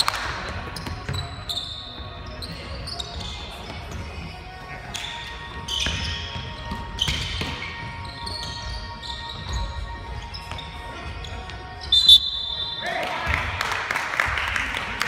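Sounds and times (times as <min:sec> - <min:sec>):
sneakers squeaking on floor: 0:00.0 - 0:13.0
basketball bouncing: 0:05.8 - 0:08.0.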